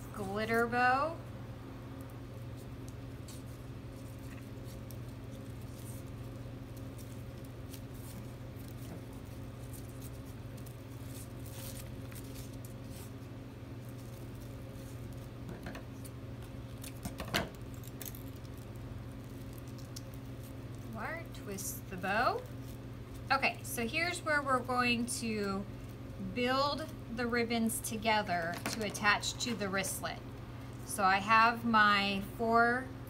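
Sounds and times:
low electrical hum: 0:00.0 - 0:33.0
ribbon rustling: 0:02.5 - 0:23.5.

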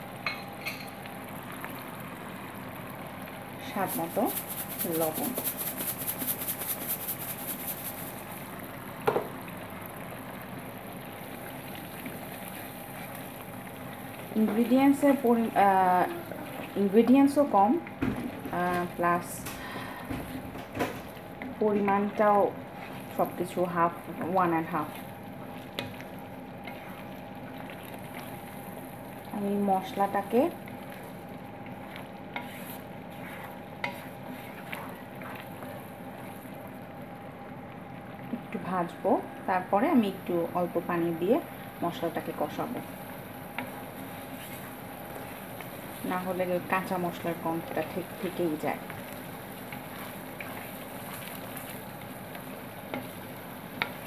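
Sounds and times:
paste sizzling in hot oil: 0:03.3 - 0:09.3, 0:21.4 - 0:36.8, 0:41.1 - 0:54.0
wooden spatula scraping pan: 0:31.7 - 0:36.4.

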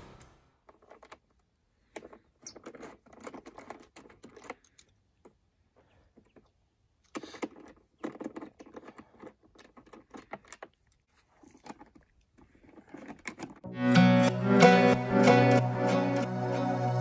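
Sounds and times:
hand tool clicking and rattling: 0:00.7 - 0:05.3
plastic panel rustling: 0:07.2 - 0:13.7
loud music: 0:13.7 - 0:17.0.

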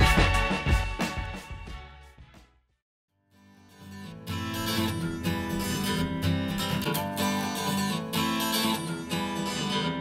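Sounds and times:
pop song with acoustic guitar: 0:00.0 - 0:01.6, 0:03.8 - 0:10.0.

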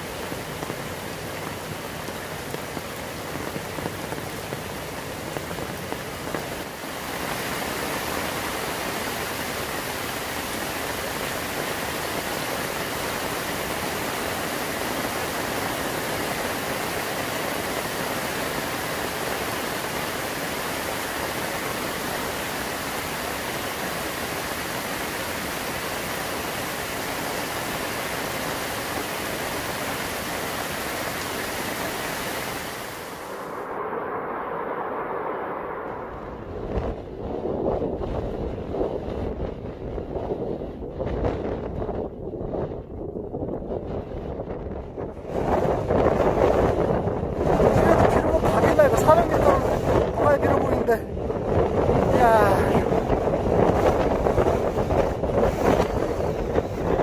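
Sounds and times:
waterfalls streaming down rock: 0:00.0 - 0:33.4, 0:47.6 - 0:51.0
heavy rain falling: 0:00.0 - 0:33.8, 0:45.3 - 0:57.0
separate raindrops: 0:00.0 - 0:37.1.

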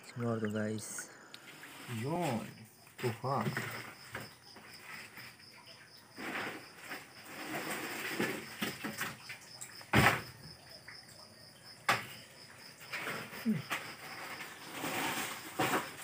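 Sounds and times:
prawns scraping against plastic: 0:01.4 - 0:05.5, 0:06.1 - 0:09.2, 0:12.8 - 0:16.0.

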